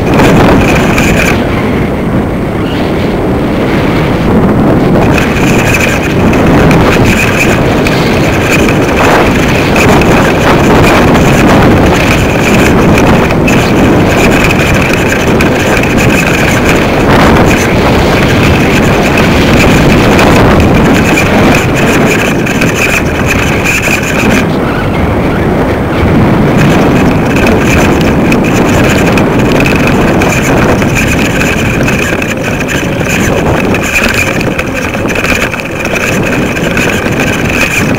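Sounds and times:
strong wind across microphone: 0.0 - 37.9.

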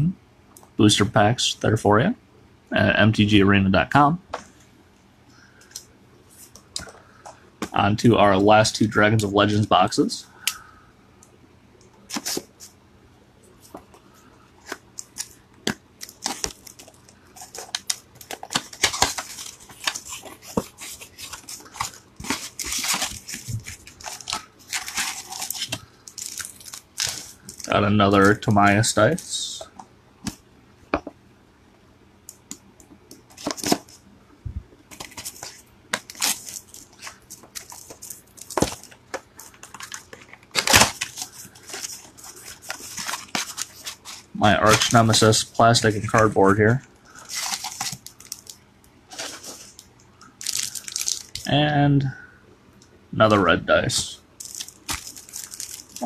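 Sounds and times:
foil wrapper ripping: 16.0 - 27.8, 39.6 - 44.9, 50.4 - 51.5, 54.4 - 56.0
cellophane tearing and crinkling: 16.0 - 28.4, 34.9 - 45.2, 47.1 - 49.8, 50.4 - 51.5, 54.4 - 56.0.

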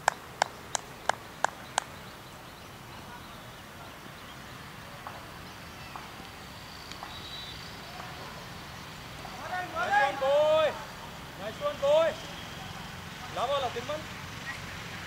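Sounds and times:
hand claps: 0.0 - 1.9.

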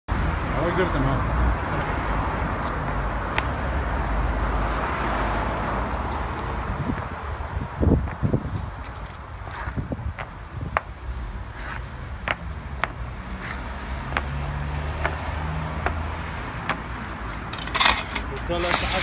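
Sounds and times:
concrete blocks clacking together: 6.2 - 19.0.

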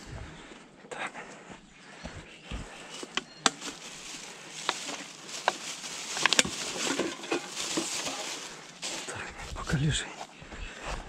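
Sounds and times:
plastic bag rustling: 2.8 - 9.5
bottle and can crinkling and knocking: 3.0 - 9.2.

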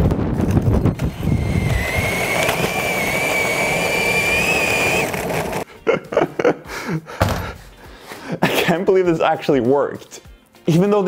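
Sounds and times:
cordless drill motor whining: 0.5 - 5.6.

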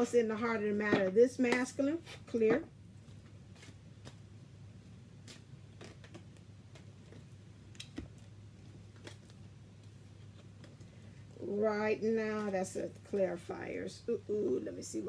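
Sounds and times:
steady low hum: 0.0 - 15.0
cards being shuffled: 3.1 - 4.3, 5.2 - 11.2.

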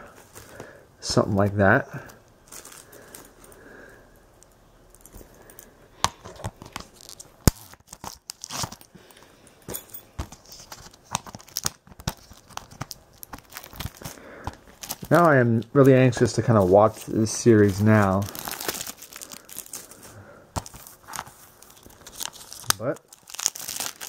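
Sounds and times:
plastic wrap crinkling: 2.4 - 3.4, 6.4 - 8.9, 10.3 - 24.0.

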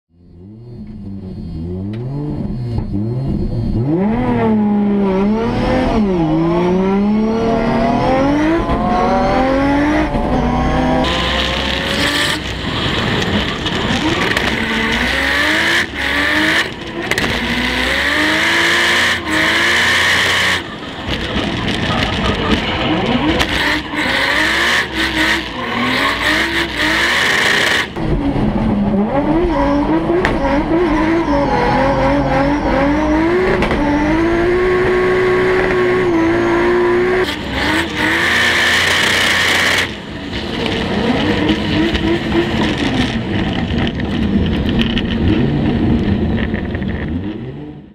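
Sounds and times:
car engine revving: 0.1 - 47.9
tyre squeal: 29.3 - 34.0.

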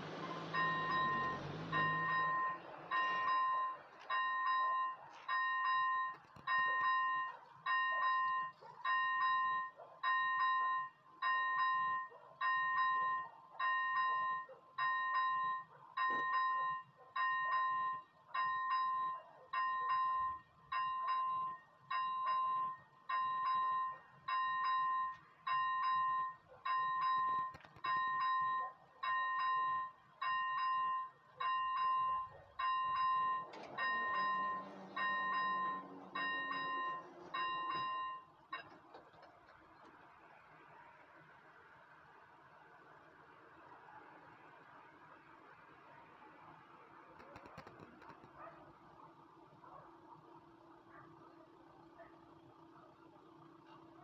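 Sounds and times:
level crossing warning bell: 0.0 - 39.1.

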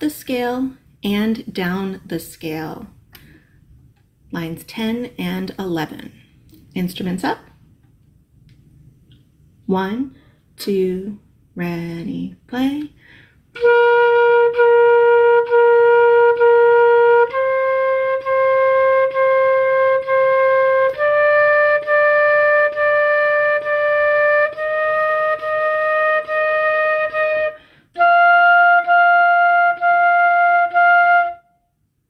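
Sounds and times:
breath: 3.1 - 3.7, 10.2 - 10.5, 13.0 - 13.5, 27.6 - 28.0
flute playing a scale: 13.6 - 31.6.

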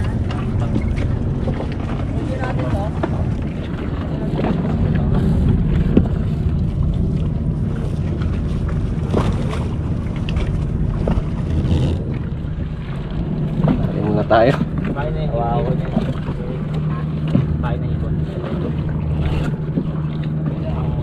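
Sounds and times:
boat engine running: 0.0 - 21.0.

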